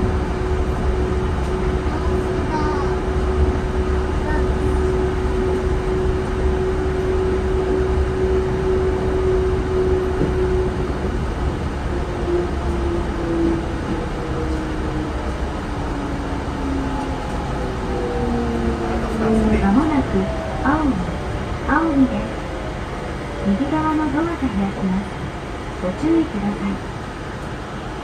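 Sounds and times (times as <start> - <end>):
train low drone: 0.0 - 28.0
train motor whine: 3.2 - 24.3.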